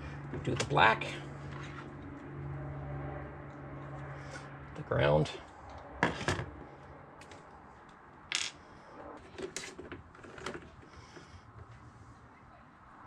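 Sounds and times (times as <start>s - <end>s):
clicks of wires and tools handled: 7.2s - 8.0s.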